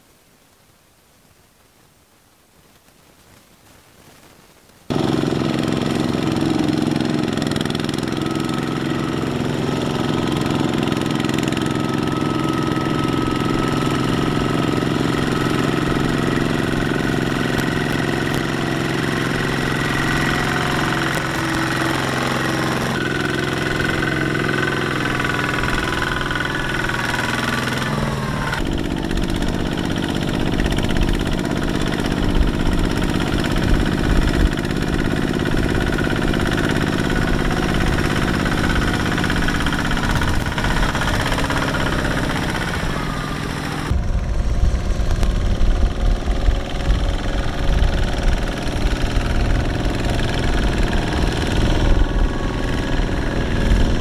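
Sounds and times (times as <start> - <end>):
diesel engine running: 4.9 - 54.0.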